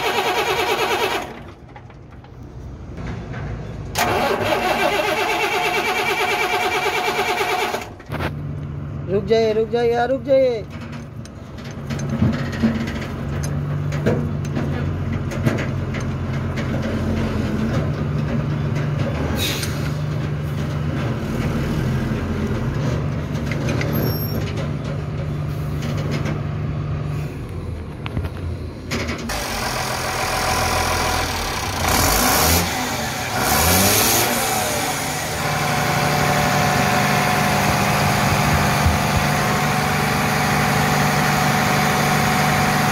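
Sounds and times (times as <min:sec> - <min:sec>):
diesel truck engine revving and idling: 0:00.0 - 0:03.0, 0:03.9 - 0:10.4, 0:11.0 - 0:42.9.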